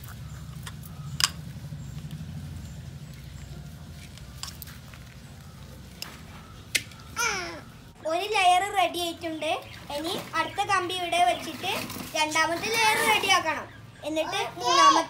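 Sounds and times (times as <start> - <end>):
low steady rumble: 0.0 - 10.0.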